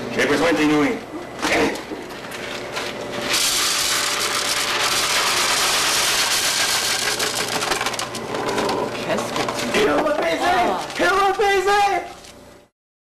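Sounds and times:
dry noodles poured into blender: 3.3 - 8.1.

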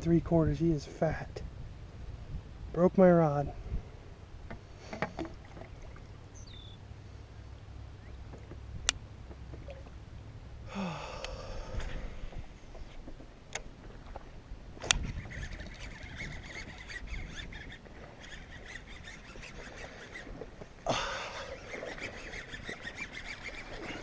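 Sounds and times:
low steady rumble: 0.0 - 16.2
short breath: 10.7 - 12.2.

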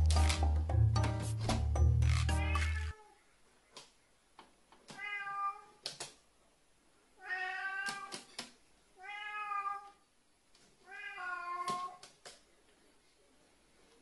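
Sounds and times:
cat meowing: 2.4 - 3.2, 4.9 - 5.8, 7.2 - 8.3, 9.0 - 10.0, 10.8 - 12.0.

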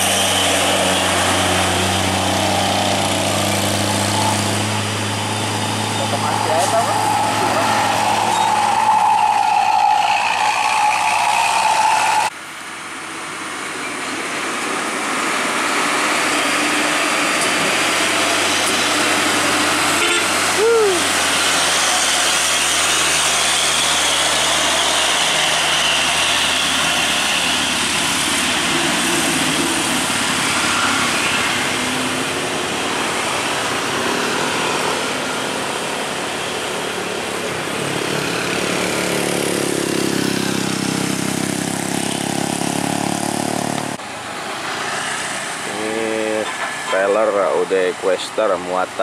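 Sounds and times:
passing engine rising in pitch: 0.0 - 12.3
truck diesel engine labouring: 0.0 - 49.0
tyre and traffic noise: 0.0 - 49.0.

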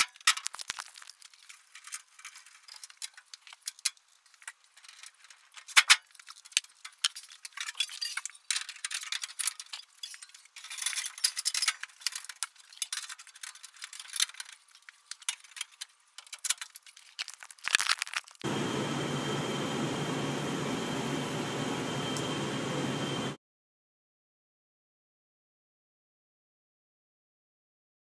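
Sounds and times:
handling clicks and clinks: 0.0 - 18.4
rustling: 16.6 - 18.4.

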